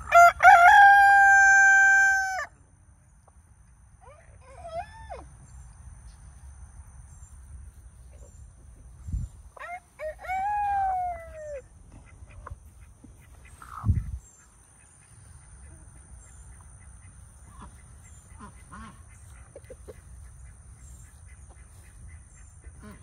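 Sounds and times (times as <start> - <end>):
rooster crowing: 0.0 - 2.6.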